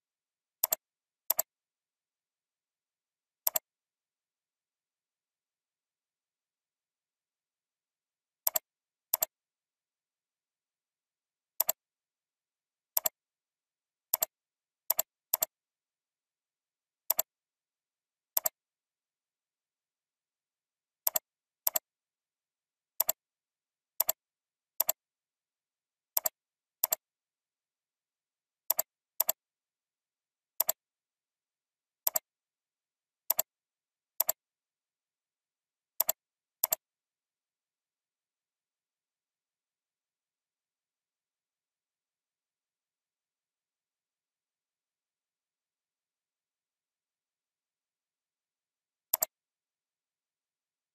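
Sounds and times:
mouse button clicks: 3.5 - 3.7, 11.6 - 11.8, 24.8 - 25.0, 30.6 - 30.8, 32.1 - 32.3, 34.2 - 34.4, 36.0 - 36.8, 49.1 - 49.3.

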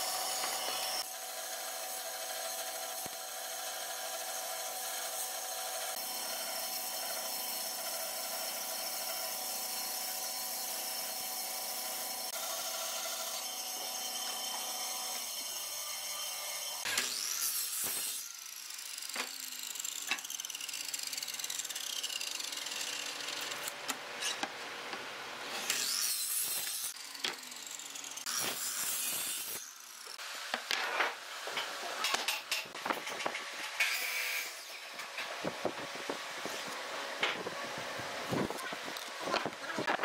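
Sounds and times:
saw blade winding down: 0.0 - 23.8, 25.5 - 30.2
power saws cutting wood: 0.0 - 40.0.

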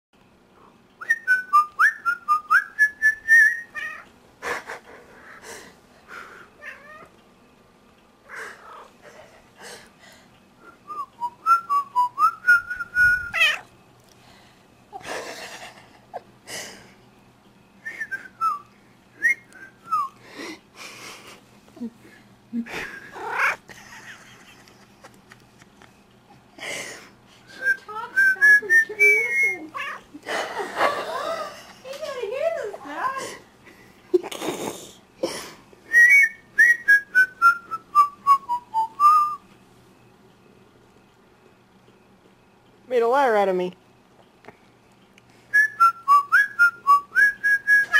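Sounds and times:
person whistling: 1.0 - 3.7, 10.6 - 13.5, 17.8 - 20.2, 35.9 - 39.4, 45.5 - 47.9
cat meowing: 6.6 - 7.1, 13.3 - 13.7, 23.2 - 23.6, 29.7 - 30.1.

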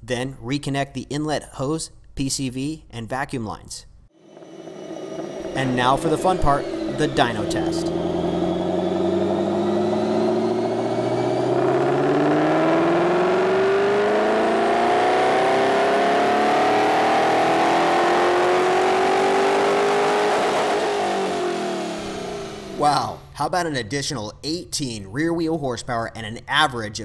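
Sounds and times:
car engine revving at full throttle: 4.2 - 23.0.

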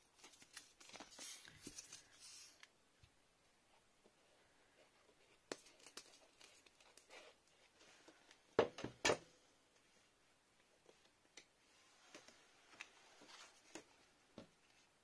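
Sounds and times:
paper rustling: 0.1 - 2.7.

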